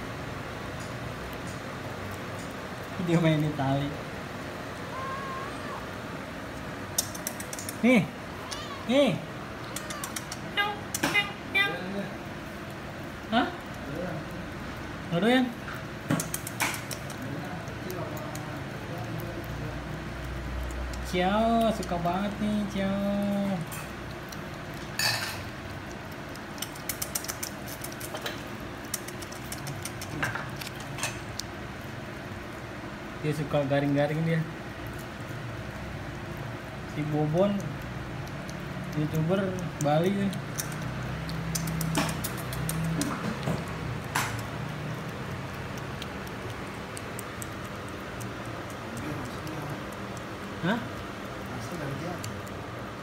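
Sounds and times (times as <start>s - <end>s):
cat tongue licking clicks: 6.9s - 7.8s, 9.6s - 11.1s, 16.0s - 31.6s, 34.8s - 52.8s.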